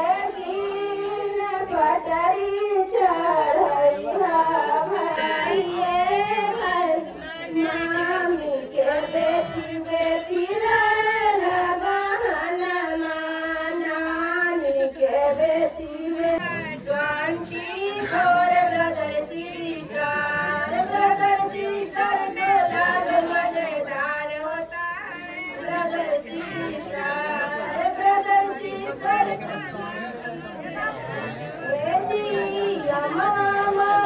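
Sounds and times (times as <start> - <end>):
women singing slow song: 0.0 - 29.5, 31.6 - 34.0.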